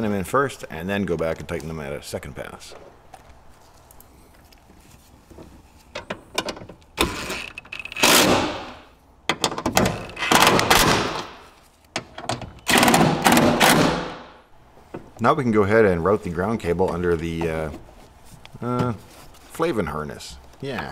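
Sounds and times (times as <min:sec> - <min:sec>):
power driver driving bolts: 0:06.0 - 0:11.4, 0:12.0 - 0:14.2.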